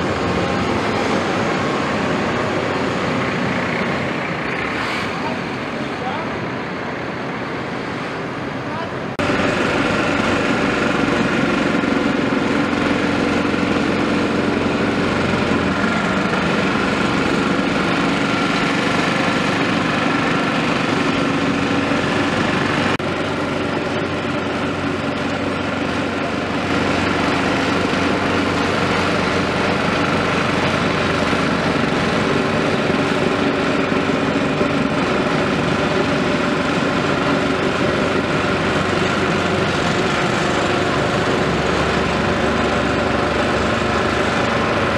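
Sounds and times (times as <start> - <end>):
plate compactor buzzing engine: 0.0 - 7.1, 9.2 - 44.9
excavator diesel engine running: 0.0 - 44.9.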